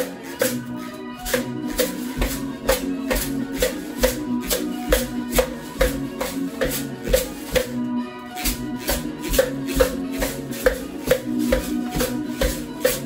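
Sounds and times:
music with a steady beat: 0.0s - 13.0s
tin can and plastic shakers rattling: 8.4s - 13.0s.

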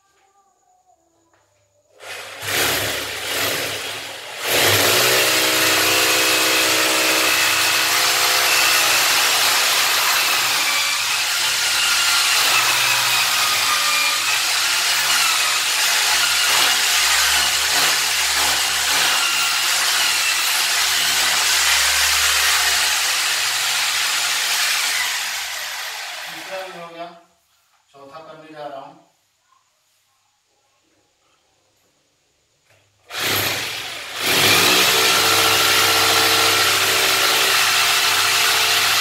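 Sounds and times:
electric hammer drill boring: 2.0s - 26.8s, 33.1s - 39.0s.

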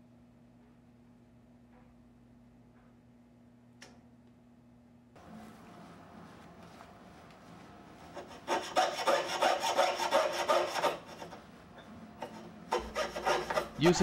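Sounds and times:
saw cutting sheet metal: 8.1s - 11.4s, 12.2s - 14.0s.

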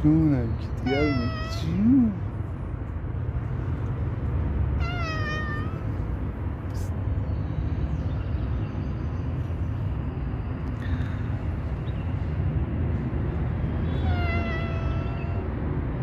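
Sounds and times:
cat meowing: 0.8s - 1.8s, 4.8s - 6.0s, 13.8s - 15.5s.

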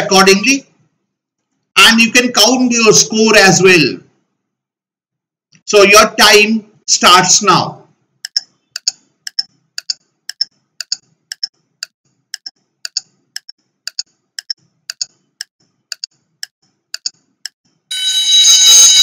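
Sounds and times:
timer clock ticking: 8.2s - 17.8s
loud steady buzzer: 17.9s - 19.0s.

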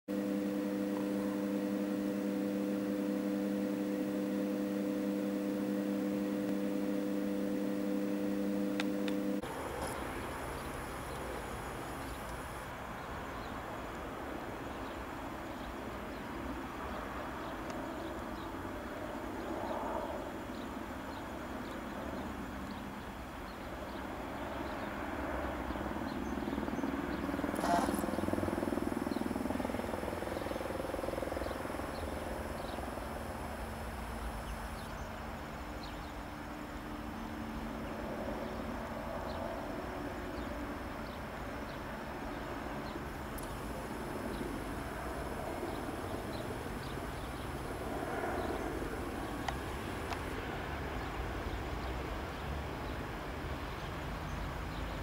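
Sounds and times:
distant helicopter rotor: 0.0s - 9.4s, 24.0s - 34.8s, 41.4s - 50.6s
electrical hum with tones: 0.0s - 9.5s, 27.0s - 40.7s, 41.4s - 50.3s.

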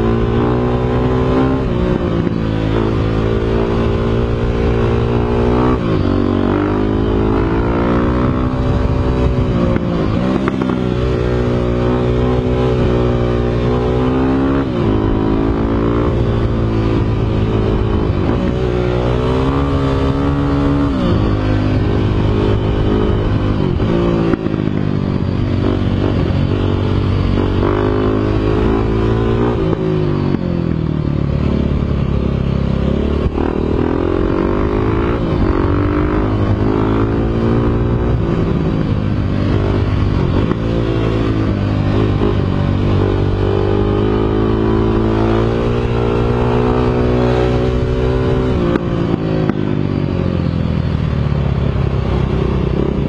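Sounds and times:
motorcycle engine revving: 0.0s - 53.0s.

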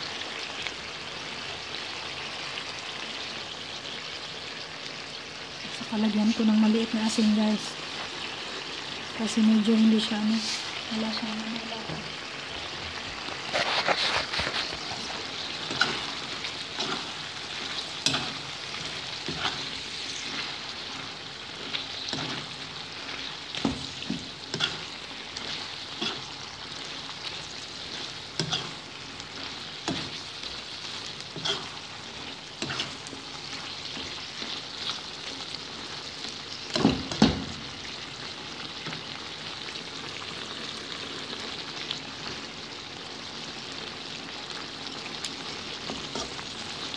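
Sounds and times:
liver sizzling in a wok: 0.0s - 46.9s
metal spatula scraping pan: 13.4s - 22.6s, 23.2s - 26.8s, 27.4s - 33.2s.

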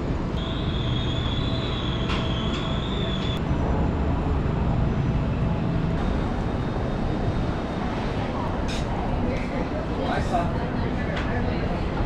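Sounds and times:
city traffic rumble: 0.0s - 12.0s
thin high whine: 0.4s - 8.2s.

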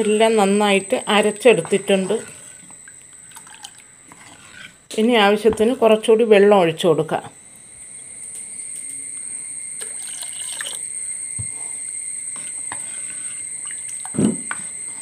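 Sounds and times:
water pouring and trickling: 9.8s - 10.8s.

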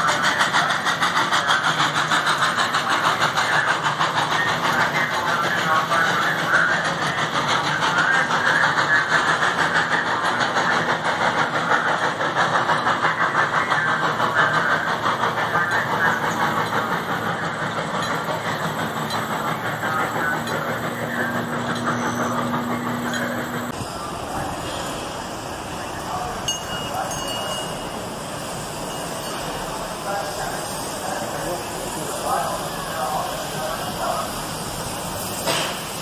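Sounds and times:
train cars clattering on track: 0.0s - 36.0s.

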